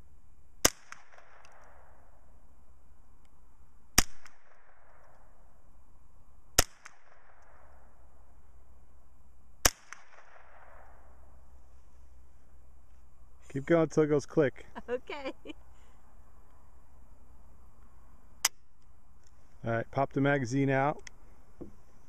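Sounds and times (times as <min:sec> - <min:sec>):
rifle shots with echo: 0:09.6 - 0:11.2.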